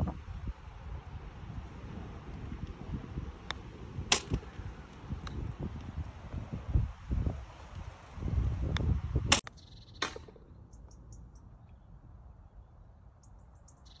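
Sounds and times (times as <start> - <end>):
wind on microphone: 0.0 - 9.4
golf club striking ball: 3.4 - 4.5
faint high bird chirps: 9.4 - 14.0.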